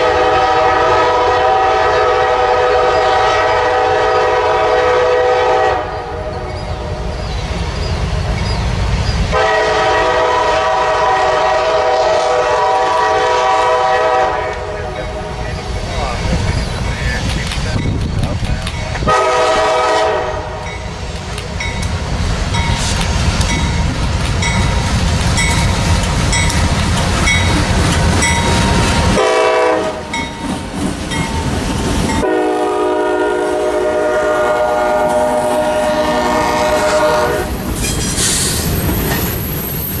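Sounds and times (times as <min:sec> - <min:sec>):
train air horn: 0:00.0 - 0:06.4, 0:09.3 - 0:15.4, 0:19.0 - 0:20.8, 0:28.5 - 0:30.2, 0:32.2 - 0:37.6
train wheels rumbling on rail: 0:00.0 - 0:40.0
rail clicks: 0:06.3 - 0:09.5, 0:14.1 - 0:32.4, 0:36.5 - 0:40.0.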